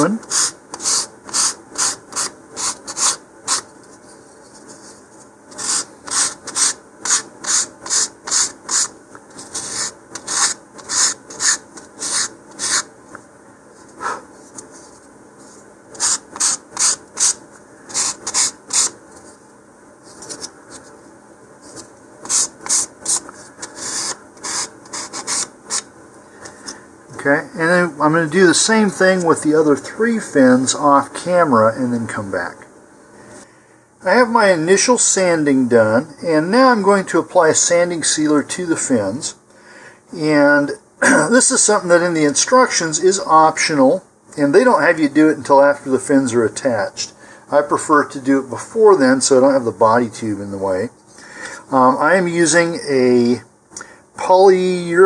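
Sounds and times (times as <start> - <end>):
sandpaper rasping on wood: 0.2 - 3.6, 5.6 - 12.9, 16.0 - 18.9, 22.2 - 25.8.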